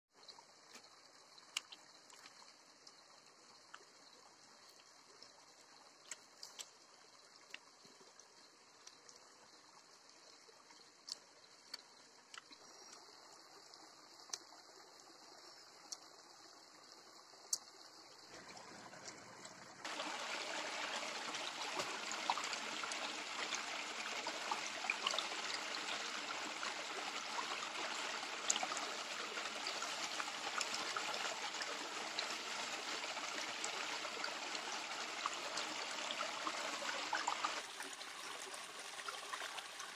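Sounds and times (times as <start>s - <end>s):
stream rushing over rocks: 19.8s - 39.9s.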